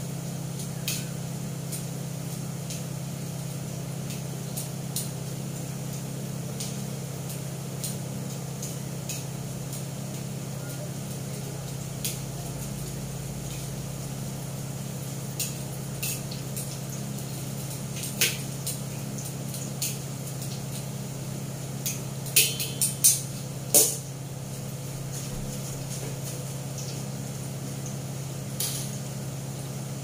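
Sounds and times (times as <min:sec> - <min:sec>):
metal utensils clinking on a wok: 0:22.3 - 0:24.0.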